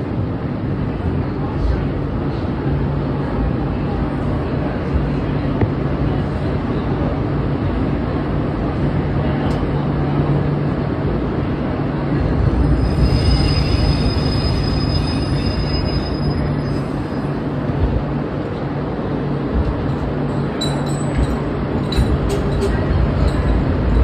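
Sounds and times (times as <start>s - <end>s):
train wheels rumbling on rail: 0.0s - 24.0s
high metallic wheel squeal: 12.6s - 17.0s.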